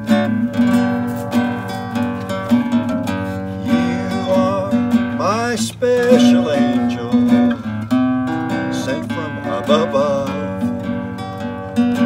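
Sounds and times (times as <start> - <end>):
classical guitar strummed and picked: 0.0 - 12.0
man singing: 3.6 - 7.7, 8.5 - 10.8.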